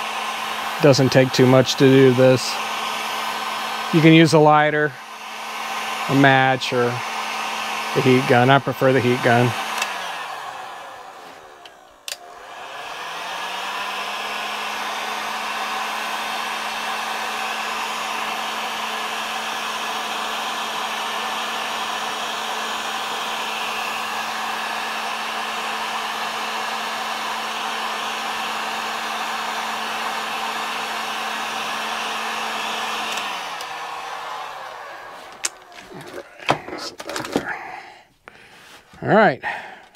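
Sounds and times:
heat gun fan humming: 0.0 - 38.8
heat gun switch click: 9.7 - 10.0, 11.6 - 12.2.

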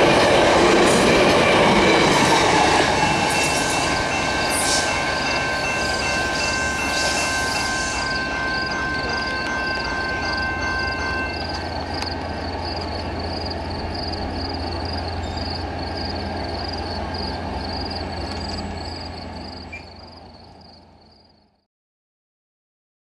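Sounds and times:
crossing bell ringing: 0.0 - 20.1
passenger train rumbling past: 0.0 - 21.6
train horn chord: 2.8 - 11.7.

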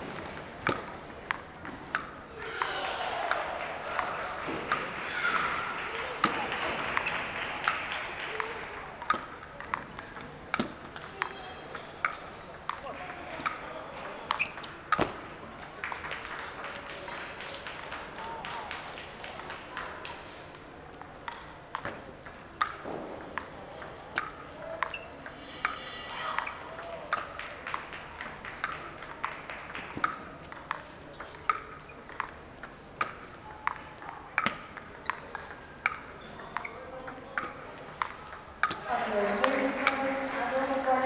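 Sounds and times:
table tennis ball clicking: 0.2 - 2.2, 8.2 - 16.3, 20.5 - 25.8, 26.4 - 40.1.

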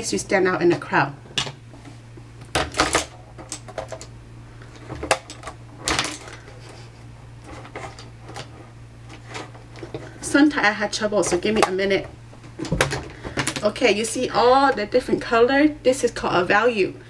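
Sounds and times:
faint low hum: 0.0 - 17.0
makeup items clicking and clattering: 2.6 - 4.1.

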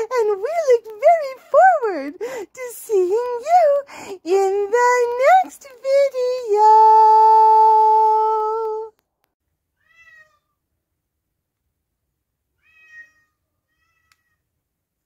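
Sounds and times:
cat meowing: 9.8 - 10.6, 12.6 - 14.4.

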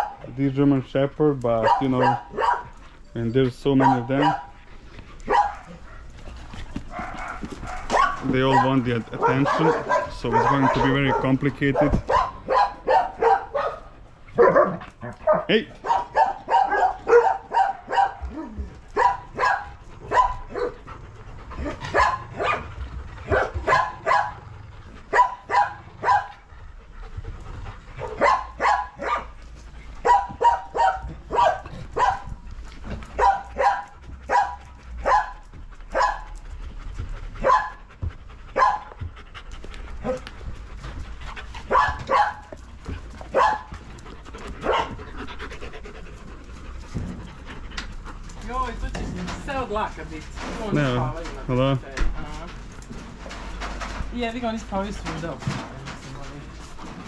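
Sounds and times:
dog barking: 0.0 - 0.2, 1.6 - 2.8, 3.7 - 4.6, 5.3 - 6.1, 6.9 - 20.8, 21.6 - 24.5, 25.1 - 26.4, 28.0 - 29.4, 30.0 - 32.4, 33.2 - 36.3, 37.4 - 37.8, 38.5 - 39.0, 41.7 - 42.5, 43.3 - 43.7, 44.6 - 45.0.

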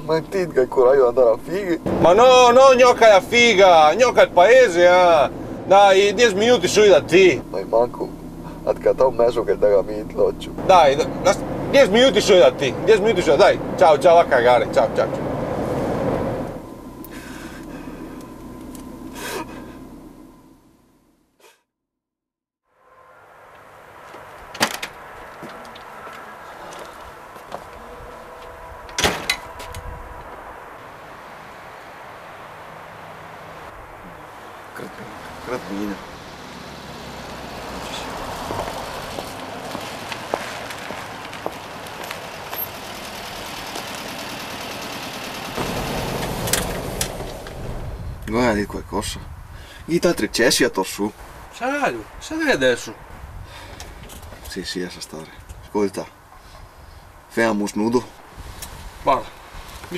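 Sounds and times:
van engine idling: 0.0 - 21.3, 25.2 - 49.9
man breathing: 17.0 - 18.3, 19.1 - 19.9, 49.5 - 49.9, 53.4 - 54.0
footsteps on pavement: 23.5 - 28.6, 38.3 - 42.9.

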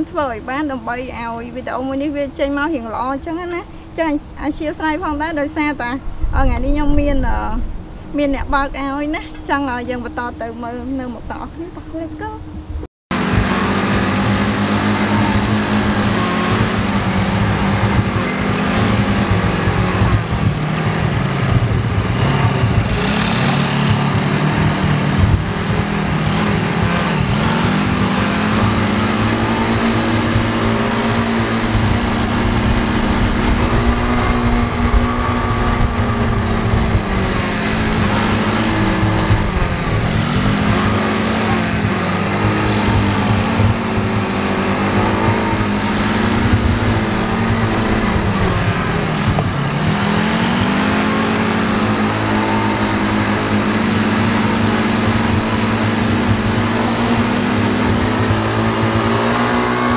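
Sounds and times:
quad bike engine revving: 0.0 - 59.9.

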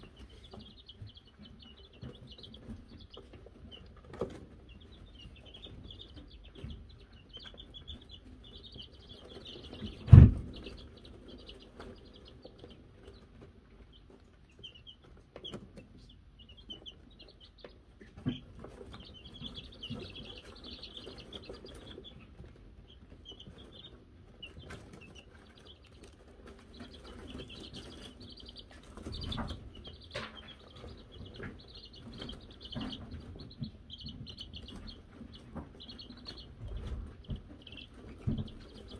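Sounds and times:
chicks peeping: 0.0 - 38.9
sharp thump: 10.1 - 10.6.

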